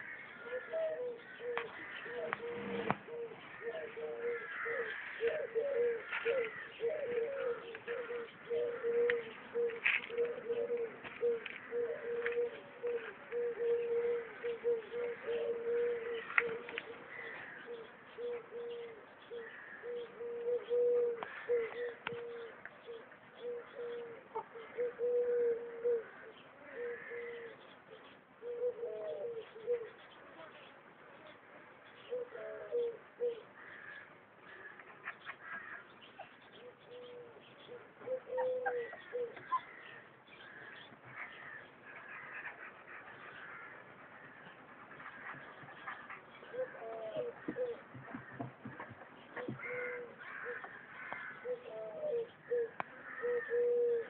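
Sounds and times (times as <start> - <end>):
pigeons cooing: 0.0 - 30.1, 32.0 - 54.0
faint bird calls: 0.0 - 54.0.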